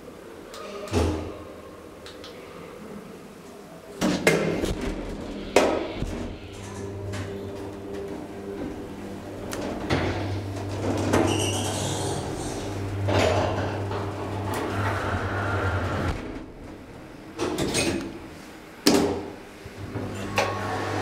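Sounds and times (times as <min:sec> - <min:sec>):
elevator doors clattering: 0:04.1 - 0:18.2
elevator drive humming: 0:04.7 - 0:21.0.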